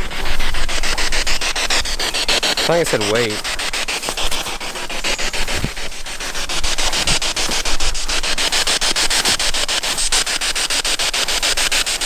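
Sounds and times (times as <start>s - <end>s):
weeds rustling against clothing: 0.0s - 12.0s.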